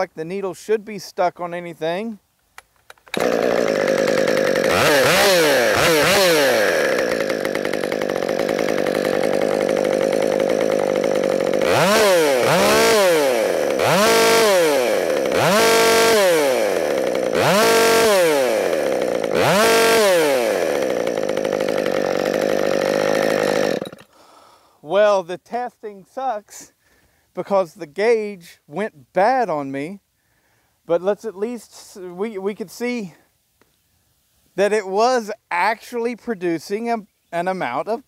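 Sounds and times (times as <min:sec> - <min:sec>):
chainsaw idling and revving: 0:03.0 - 0:24.6.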